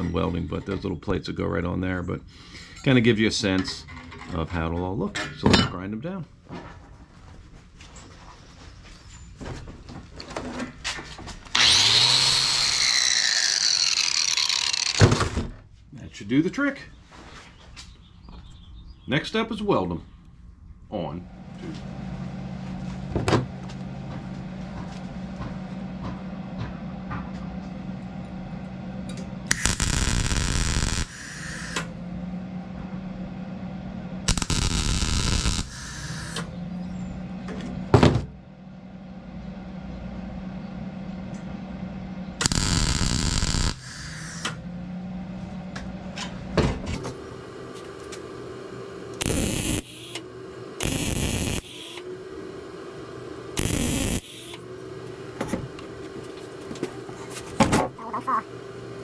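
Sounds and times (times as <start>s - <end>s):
steady low hum: 0.0s - 59.0s
welding crackling hiss: 29.5s - 31.8s, 34.3s - 36.4s, 42.4s - 44.4s, 49.2s - 50.2s, 50.8s - 52.0s, 53.6s - 54.6s.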